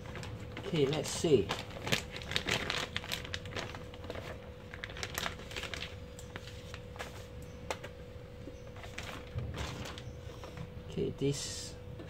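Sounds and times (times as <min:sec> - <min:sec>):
plastic bag crinkling: 0:00.0 - 0:07.4, 0:08.8 - 0:10.2.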